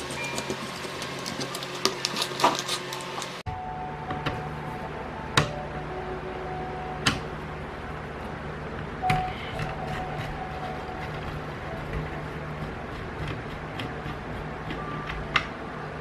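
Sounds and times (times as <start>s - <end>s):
steady low hum: 3.4s - 16.0s.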